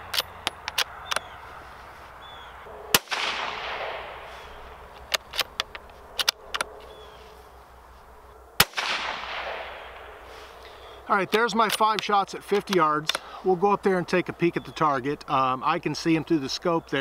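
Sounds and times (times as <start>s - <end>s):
rifle shot with echo: 2.9s - 4.6s, 8.6s - 10.3s
rifle bolt clicking: 5.0s - 6.7s.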